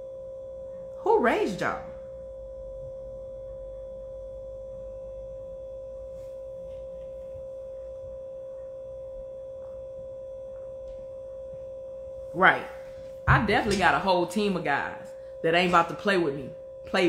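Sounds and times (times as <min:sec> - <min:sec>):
steady mid-pitched tone: 0:00.0 - 0:17.0
faint low rumble: 0:01.8 - 0:15.4.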